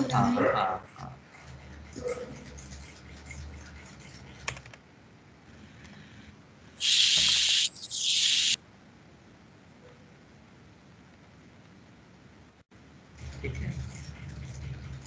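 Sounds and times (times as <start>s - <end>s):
loud bursts of hiss: 6.8s - 8.6s.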